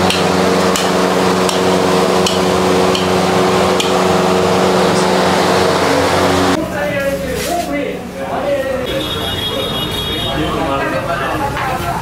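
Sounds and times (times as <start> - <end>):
hot griddle humming and hissing: 0.0 - 6.6.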